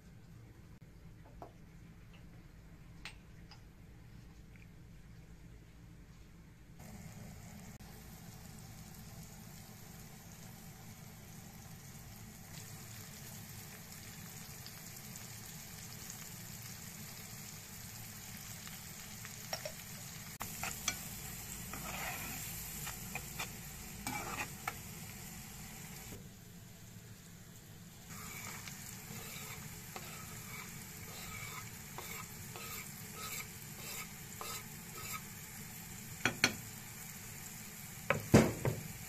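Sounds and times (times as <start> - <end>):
vegetables sizzling in oil: 6.8 - 39.0
spoon scraping against pan: 20.4 - 24.9, 28.1 - 35.4.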